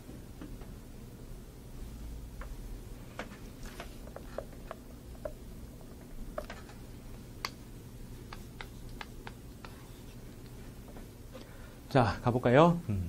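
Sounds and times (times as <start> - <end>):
chalk tapping on chalkboard: 8.2 - 11.0.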